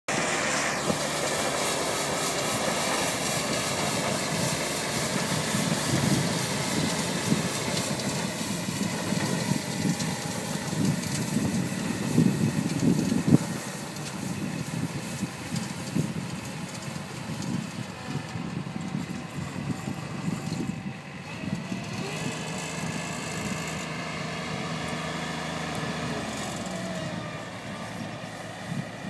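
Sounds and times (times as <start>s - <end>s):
broom sweeping gravel: 0.1s - 9.6s
mower engine drone: 0.1s - 29.0s.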